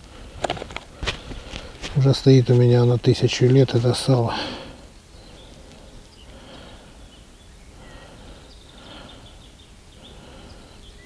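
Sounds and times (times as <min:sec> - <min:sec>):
steady low hiss: 0:00.0 - 0:11.0
faint bird chirps: 0:04.6 - 0:11.0.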